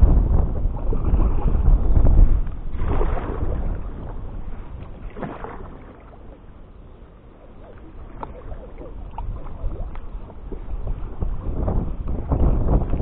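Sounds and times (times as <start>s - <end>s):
paddle splashing in water: 0.0s - 13.0s
water dripping off paddle: 7.6s - 11.0s.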